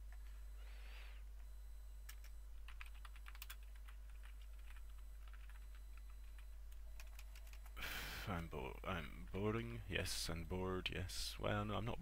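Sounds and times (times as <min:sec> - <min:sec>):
faint low hum: 0:00.0 - 0:12.0
typing on computer keyboard: 0:02.1 - 0:07.8.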